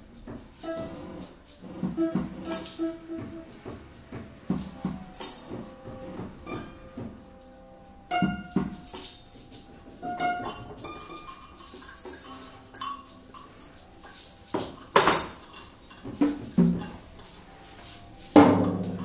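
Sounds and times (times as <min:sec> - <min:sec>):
short held notes: 0:00.6 - 0:16.0
percussive strikes and clinks: 0:02.4 - 0:03.3, 0:05.1 - 0:06.0, 0:08.2 - 0:09.6, 0:10.4 - 0:16.9.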